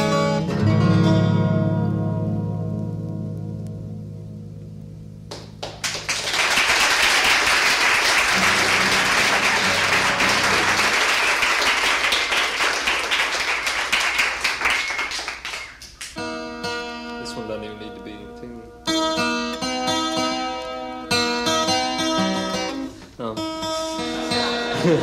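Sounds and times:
guitar chord: 0.0s - 5.3s
acoustic guitar playing: 0.0s - 6.1s, 8.0s - 13.8s, 15.8s - 25.0s
audience applause: 5.3s - 16.2s.

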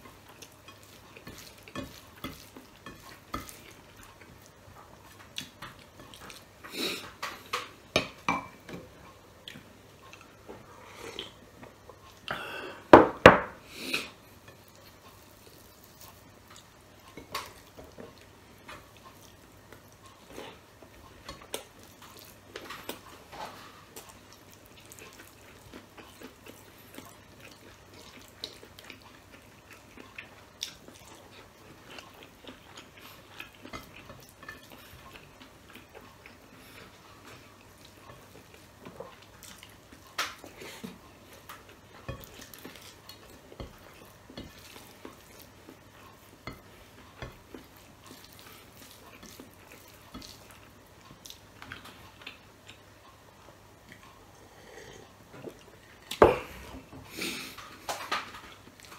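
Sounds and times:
chewing and lip smacks: 24.0s - 54.2s.

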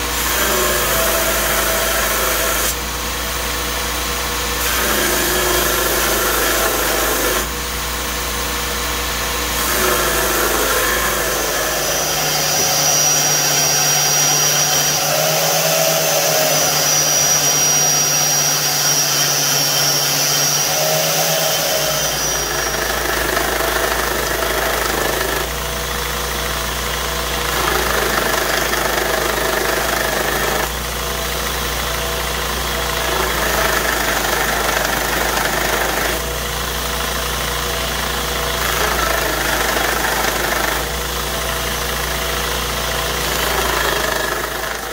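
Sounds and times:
belt grinder grinding steel: 0.0s - 2.8s, 4.5s - 7.6s, 9.5s - 25.6s, 32.7s - 36.4s, 38.4s - 44.9s
high whine of belt tool: 0.0s - 44.9s.

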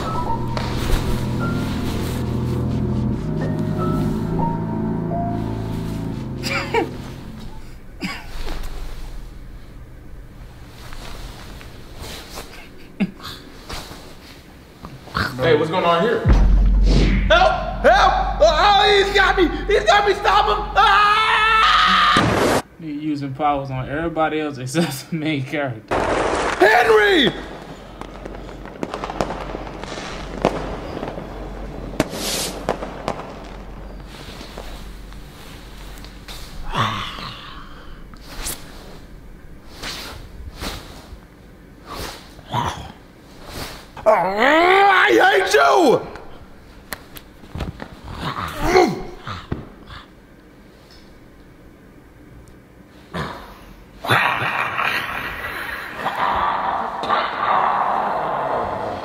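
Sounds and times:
fireworks crackle: 0.0s - 4.6s, 5.2s - 14.3s, 25.9s - 36.7s
fireworks popping: 25.9s - 36.6s
person gasping: 36.6s - 38.1s.

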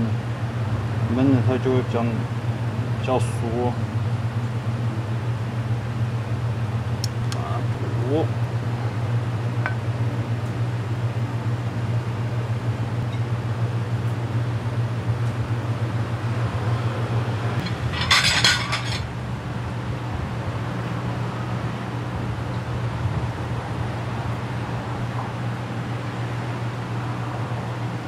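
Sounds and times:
kitchen machinery humming: 0.0s - 28.0s
cookware clatter: 17.7s - 19.1s.

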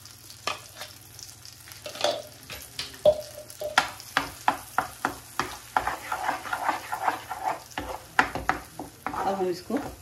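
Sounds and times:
faint sizzle: 0.0s - 10.0s
spatula scraping a pan: 4.3s - 10.0s.

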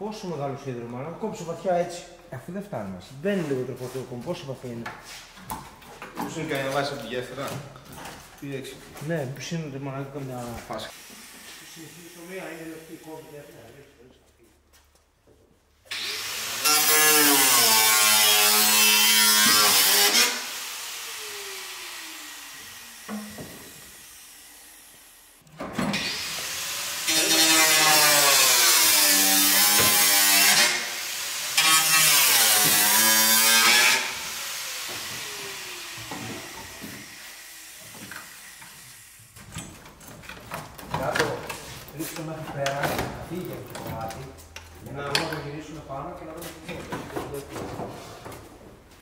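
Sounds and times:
angle grinder cutting steel: 10.9s - 13.4s, 15.9s - 39.2s.

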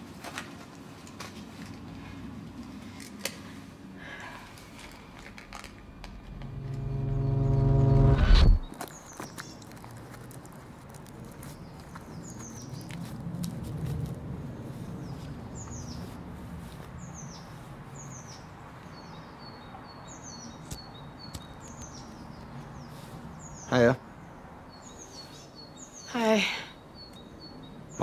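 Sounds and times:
low rumble: 5.2s - 8.7s.

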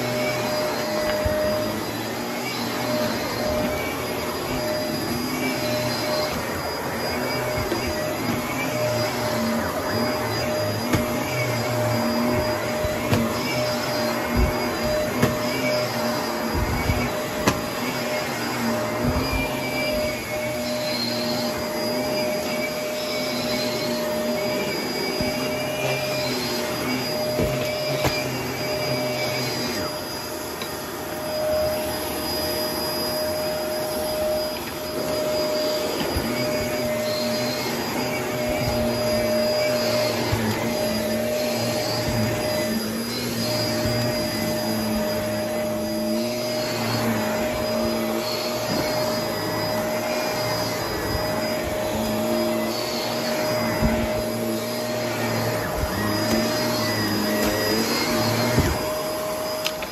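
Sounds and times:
upright vacuum cleaner on carpet: 0.0s - 59.9s.

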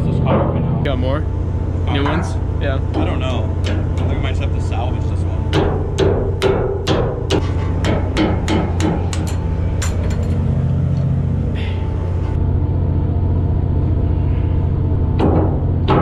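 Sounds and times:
machinery low hum: 0.0s - 16.0s
hammer striking steel: 5.4s - 10.4s.

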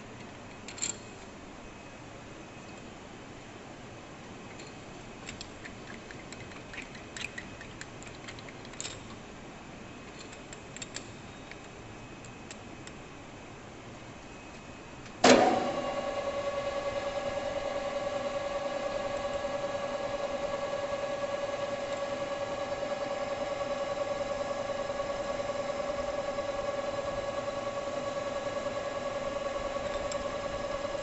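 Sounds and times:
metal lathe humming: 15.3s - 31.0s.

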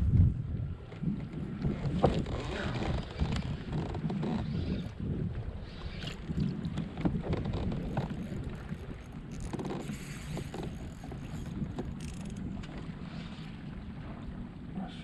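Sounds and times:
small waves lapping at hull: 0.0s - 15.0s
wind rumbling on microphone: 0.0s - 15.0s
faint ticks: 9.3s - 12.8s.

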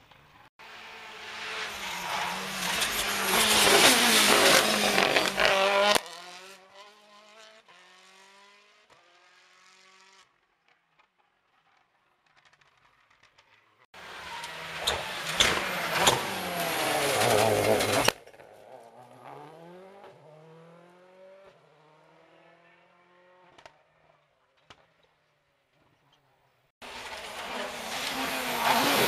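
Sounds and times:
rally car approaching: 0.1s - 10.2s, 14.0s - 23.5s, 26.8s - 29.0s
rally car engine passing: 0.6s - 10.2s, 14.0s - 23.5s, 26.8s - 29.0s
fainter engine climbing through gears: 14.0s - 21.0s.

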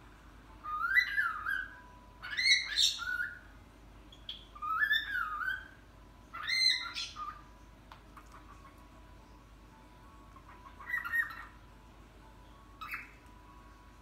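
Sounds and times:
cockatiel whistling: 0.6s - 3.5s, 4.2s - 7.4s, 10.6s - 11.6s, 12.8s - 13.2s.

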